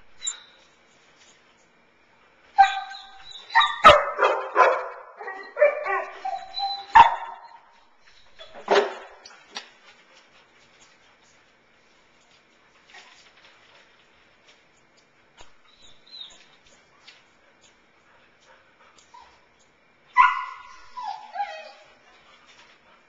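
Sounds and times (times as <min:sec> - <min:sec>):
dog barking and whining: 0:02.6 - 0:09.3, 0:20.1 - 0:22.2.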